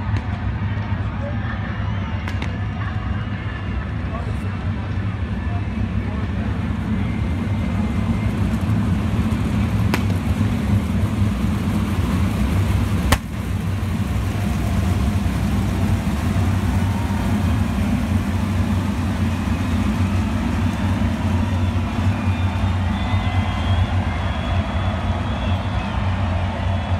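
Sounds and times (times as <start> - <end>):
race car engines running: 0.0 - 26.9
sharp crack: 9.8 - 10.4, 13.0 - 13.6.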